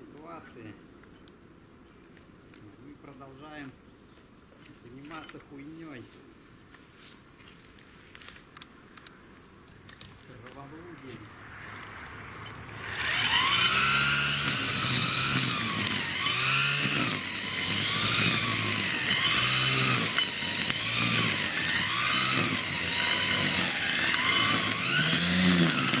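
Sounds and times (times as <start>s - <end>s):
electric string trimmer cutting grass: 11.6s - 26.0s.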